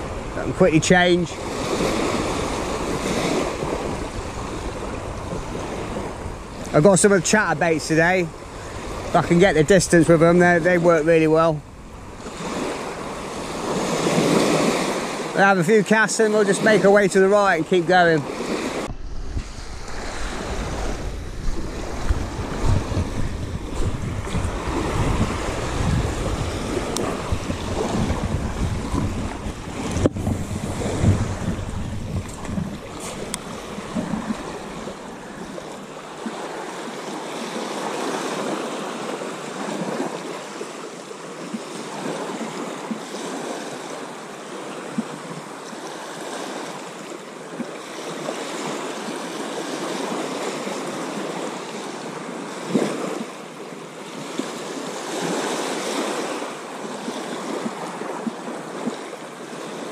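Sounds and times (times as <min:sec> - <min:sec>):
wind buffeting microphone: 0:00.0 - 0:15.3, 0:17.8 - 0:37.2
small waves lapping on beach: 0:00.0 - 0:59.9.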